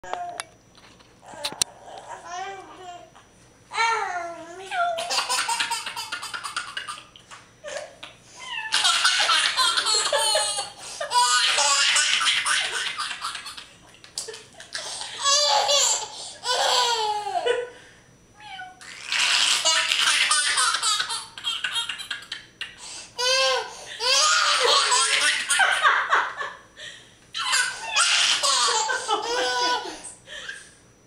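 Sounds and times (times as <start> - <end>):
baby laughing: 4.7 - 7.8, 8.6 - 17.5, 18.8 - 25.9, 27.4 - 30.6.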